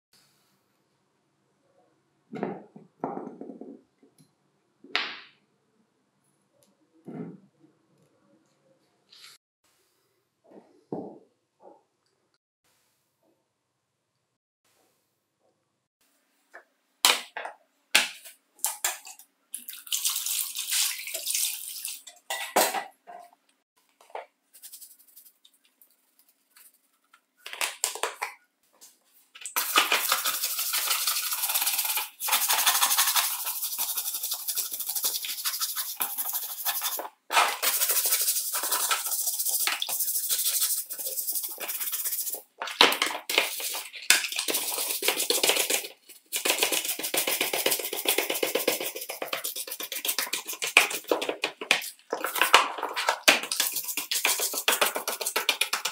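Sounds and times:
brush scrubbing plastic: 29.6s - 55.9s.

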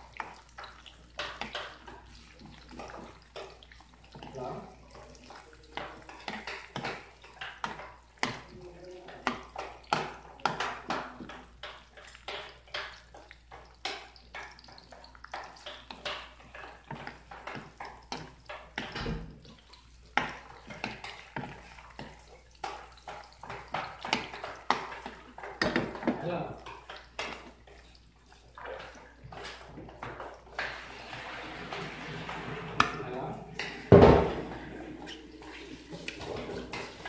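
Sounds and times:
metal ladle scraping a frying pan: 26.6s - 32.8s.

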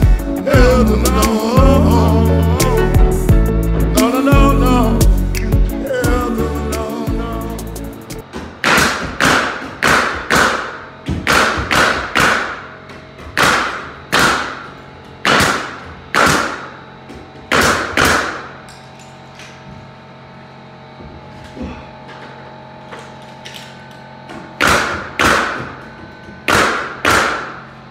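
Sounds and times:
pneumatic nail gun shots: 8.6s - 12.8s, 13.4s - 16.8s, 17.5s - 18.7s, 24.6s - 25.8s, 26.4s - 27.7s.

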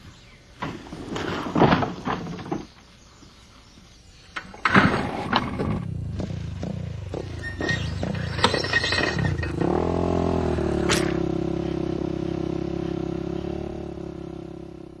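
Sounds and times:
vehicle engine running: 5.3s - 15.0s
clattering knocks: 6.6s - 9.8s
sharp click: 10.8s - 11.2s.

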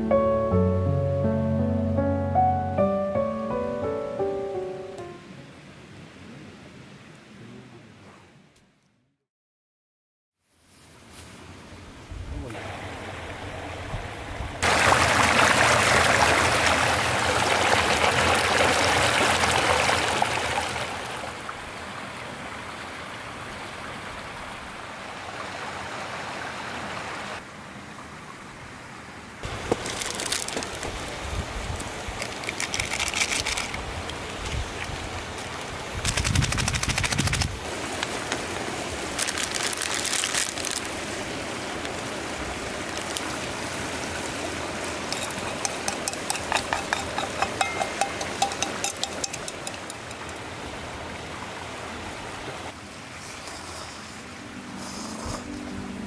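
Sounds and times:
stream rushing over rocks: 12.5s - 28.7s, 29.4s - 32.8s, 33.4s - 36.0s, 37.4s - 53.4s
quick ticks: 36.0s - 37.5s
utensil scraping steel pot: 45.1s - 50.3s.

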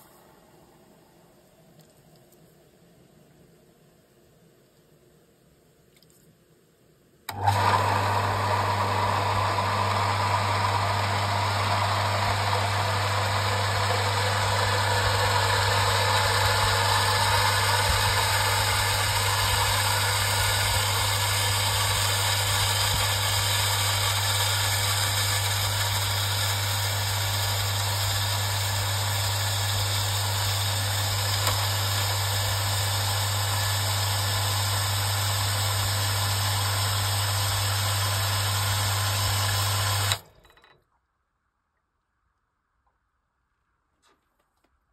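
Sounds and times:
water pump motor hum: 7.3s - 40.2s.

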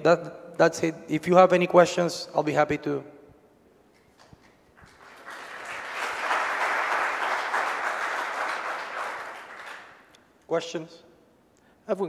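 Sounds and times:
audience applauding: 4.0s - 10.2s.

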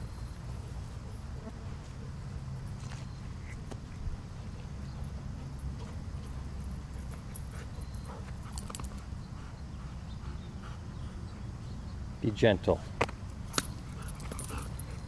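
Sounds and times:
dogs playing: 2.3s - 12.1s, 13.3s - 15.0s.

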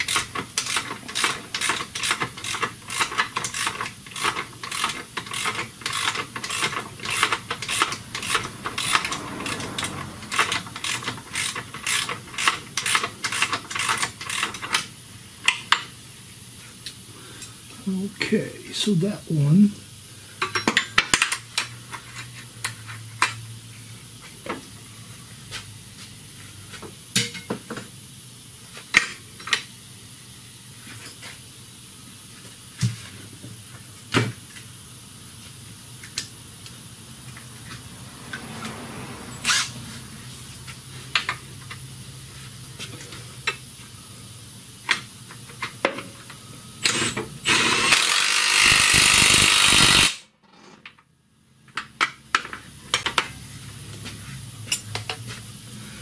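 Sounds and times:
cordless power tool running: 46.8s - 50.2s.

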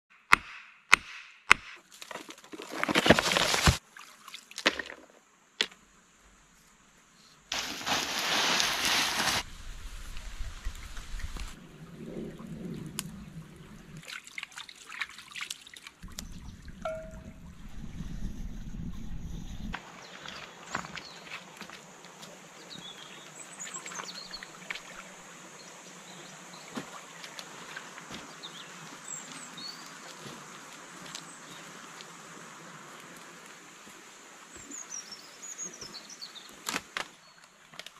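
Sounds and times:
creek flowing over stones: 1.9s - 5.8s, 7.5s - 17.3s, 19.8s - 37.9s
wood and stones clattering: 2.0s - 3.8s
footsteps knocking on stones: 2.1s - 3.8s, 4.6s - 5.8s, 7.5s - 9.5s
gravel poured onto wet stones: 7.5s - 9.5s.

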